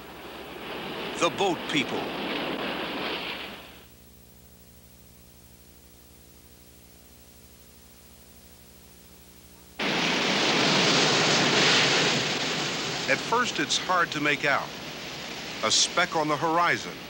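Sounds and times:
loud surf: 0.0 - 3.9, 9.8 - 17.0
sea noise: 0.0 - 3.9, 9.8 - 17.0
low electrical hum: 0.0 - 17.0.

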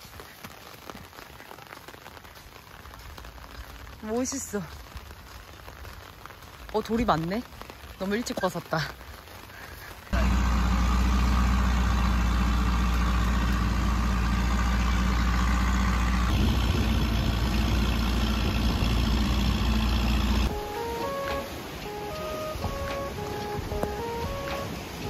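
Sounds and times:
boat engine droning: 10.2 - 25.0
soft background music: 20.5 - 25.0.

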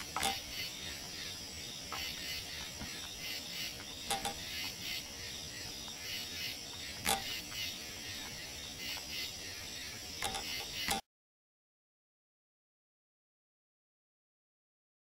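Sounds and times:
night insects chirring: 0.0 - 11.0.

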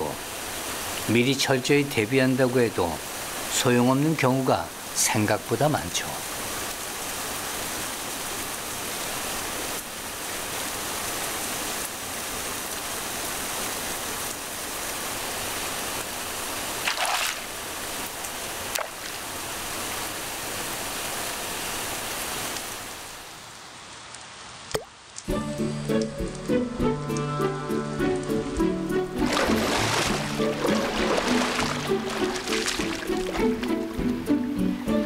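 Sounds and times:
heavy rain on pavement: 0.0 - 28.6, 29.2 - 34.1.

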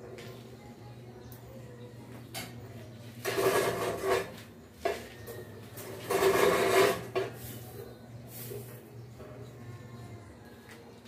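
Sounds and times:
metal scraping on metal rim: 3.2 - 5.0, 5.8 - 8.8.

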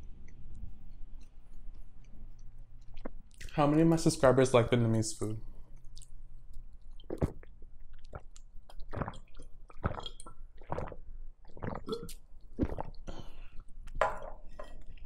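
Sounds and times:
person gulping water: 2.8 - 3.6, 7.0 - 14.0.

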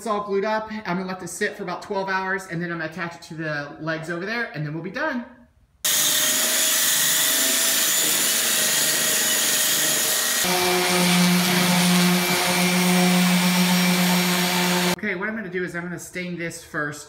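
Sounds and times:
belt sander on wood: 5.9 - 15.0
orbital sander humming: 5.9 - 15.0.

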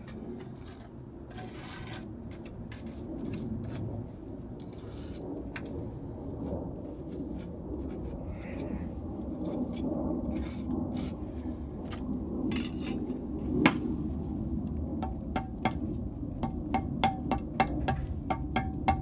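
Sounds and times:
low background rumble: 0.0 - 19.0
metal trowel tapping on brick: 16.4 - 19.0.

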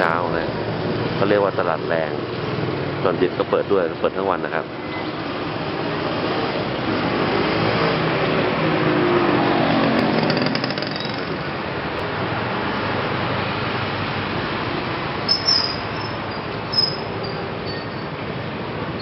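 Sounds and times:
street noise: 0.0 - 19.0
motorcycles riding past: 5.8 - 11.7.

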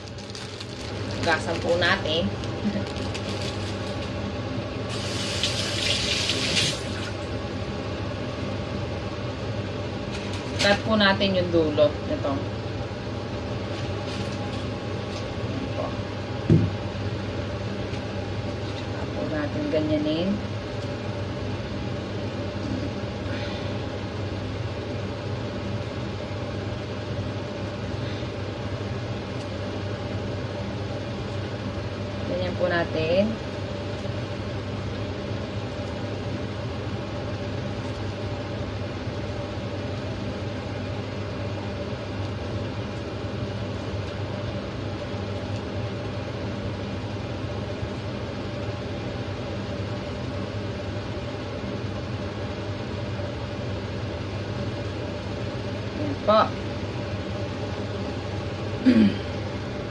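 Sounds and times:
mushrooms rustling pulled apart: 0.0 - 1.8, 2.4 - 4.2
steady low hum: 0.0 - 59.9
kitchen tap running: 4.9 - 7.2.

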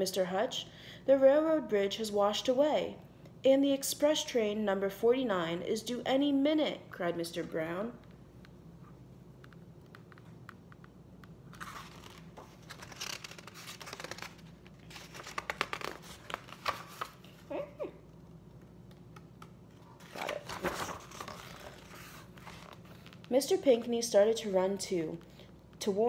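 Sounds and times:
paper pages rustling: 11.5 - 17.5, 19.0 - 23.3.

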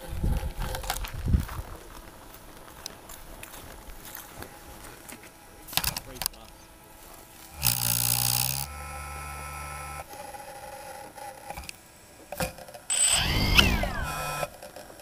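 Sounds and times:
drone motors whirring: 7.4 - 15.0.

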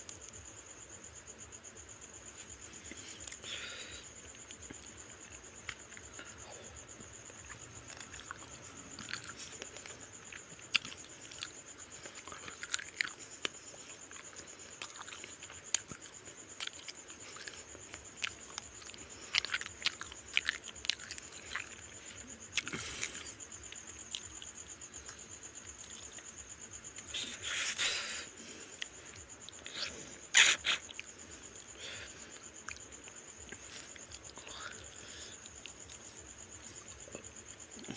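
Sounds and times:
person chewing wetly: 7.0 - 25.2.

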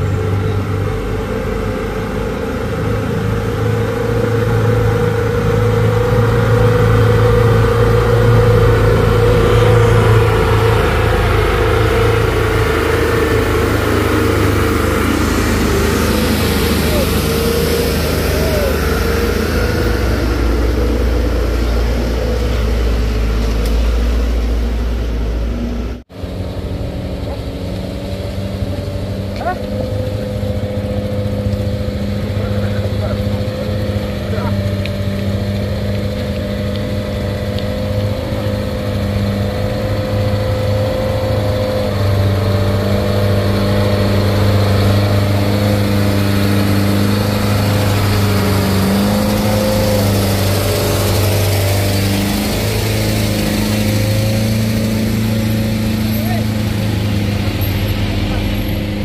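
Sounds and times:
voices: 0.0 - 23.7, 28.7 - 37.4, 43.5 - 59.0
truck engines straining: 0.0 - 59.0.

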